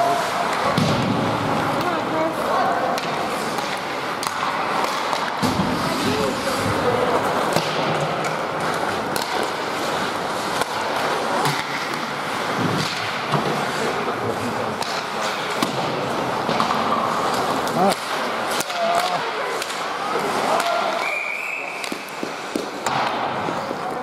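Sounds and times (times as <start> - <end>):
skate blades scraping ice: 0.0 - 24.0
sticks clacking on puck: 2.9 - 21.0, 21.8 - 24.0
people shouting: 18.6 - 21.2.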